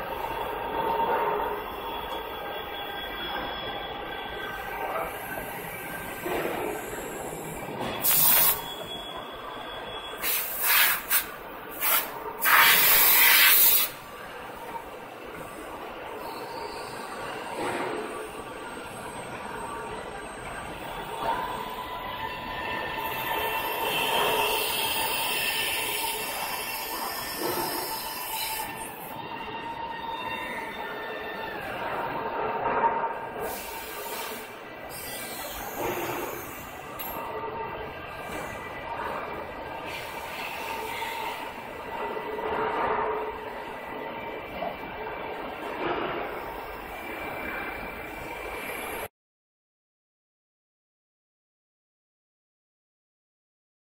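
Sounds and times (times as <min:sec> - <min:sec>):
machinery hissing: 0:05.1 - 0:08.7, 0:33.4 - 0:37.0
loud hissing bursts: 0:10.2 - 0:13.9.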